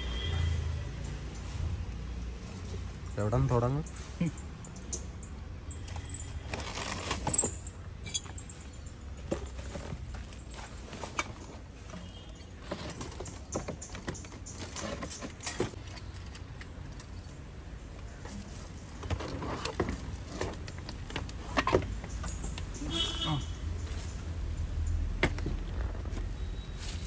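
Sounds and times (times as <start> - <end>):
items knocking and clicking: 5.9 - 16.8
plastic bags rustling: 6.3 - 7.8.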